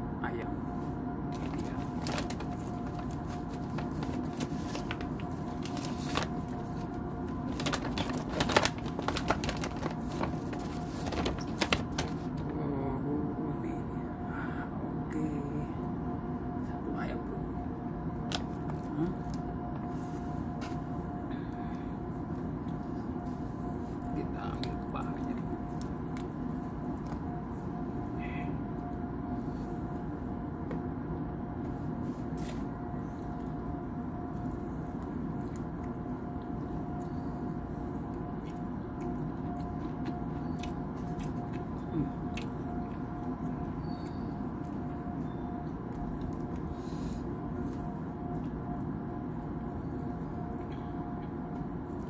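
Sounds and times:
faint steady whine: 0:00.0 - 0:52.0
steady background hum: 0:00.0 - 0:52.0
food wrapping crackling: 0:01.3 - 0:12.5.

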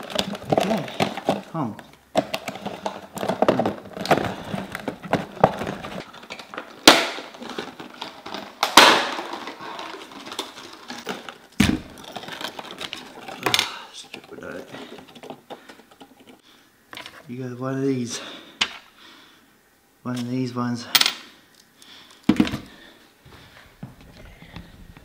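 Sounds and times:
plastic packaging crinkling: 0:00.0 - 0:16.4
plastic cracking sharply: 0:02.0 - 0:13.8.

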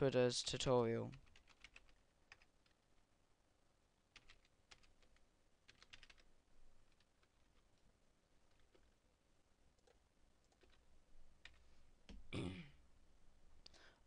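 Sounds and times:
computer keyboard typing: 0:01.1 - 0:02.8, 0:04.1 - 0:07.8, 0:08.5 - 0:08.9, 0:09.8 - 0:11.6.

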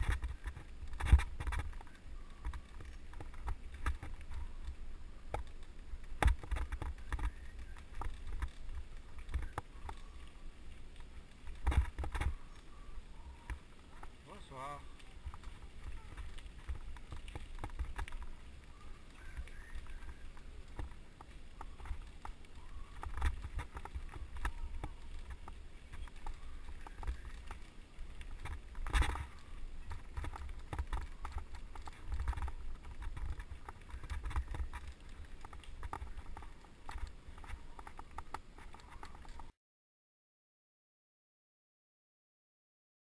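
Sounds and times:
bike rattling on dirt path: 0:00.0 - 0:39.5.

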